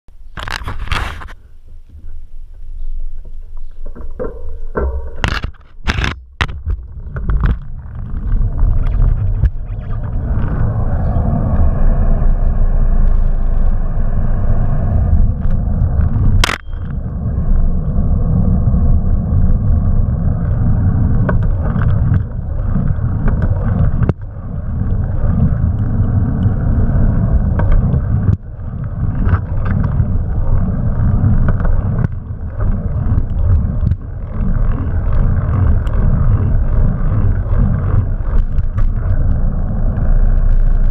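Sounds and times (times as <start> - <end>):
clicks and knocks from bike: 0.3 - 9.8, 20.4 - 26.6, 27.4 - 40.9
wind buffeting on microphone: 0.3 - 40.9
tyre rumble on asphalt: 3.0 - 40.9.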